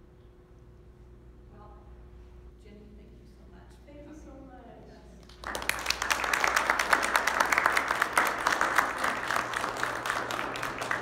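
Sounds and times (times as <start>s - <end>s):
audience applauding: 5.3s - 11.0s.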